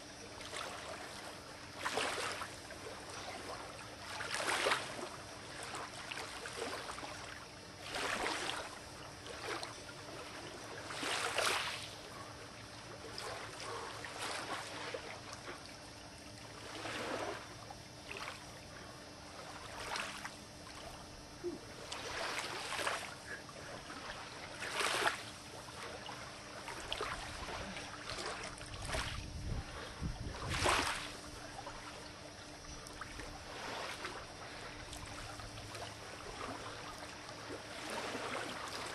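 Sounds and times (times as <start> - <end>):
lake waves lapping on shore: 0.0 - 38.9
wind rumble on microphone: 28.5 - 31.5.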